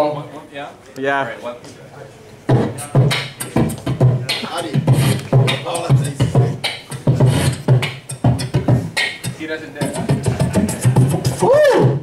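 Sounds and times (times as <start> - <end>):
man beatboxing into microphone: 2.5 - 12.0.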